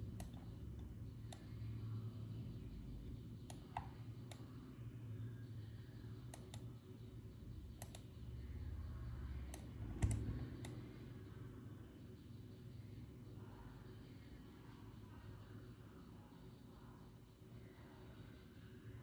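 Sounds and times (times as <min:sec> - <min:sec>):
low steady hum: 0:00.0 - 0:19.0
computer mouse and keyboard clicks: 0:09.5 - 0:10.8.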